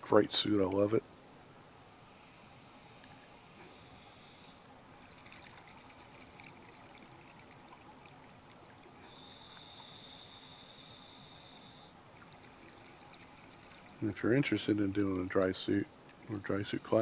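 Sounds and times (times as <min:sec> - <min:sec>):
high-pitched whine: 0:01.8 - 0:04.7, 0:15.4 - 0:17.0.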